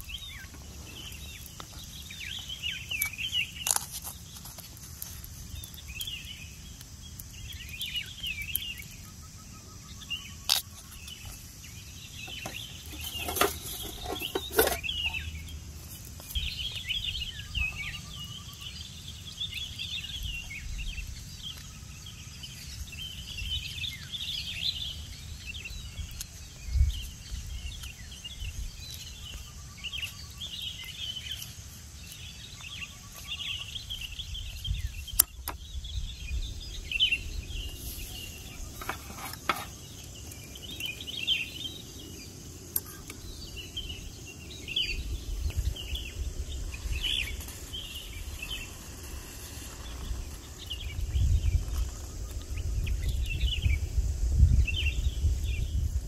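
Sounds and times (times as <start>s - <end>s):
small birds chirping: 0.0s - 56.0s
wind rumbling on microphone: 18.9s - 56.0s.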